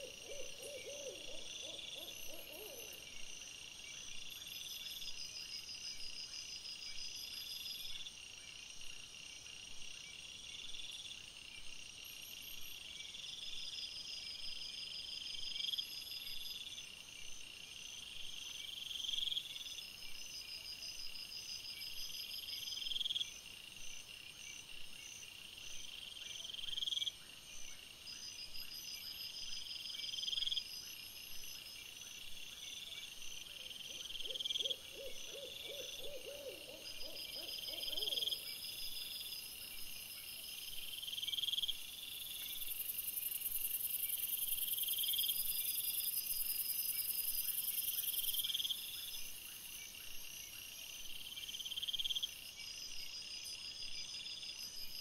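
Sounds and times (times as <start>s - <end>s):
owl hooting: 0.0s - 3.0s, 33.9s - 38.5s.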